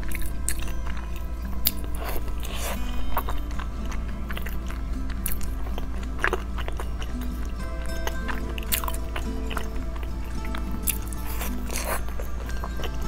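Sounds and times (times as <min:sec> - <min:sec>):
biting and chewing pastry: 0:00.0 - 0:13.0.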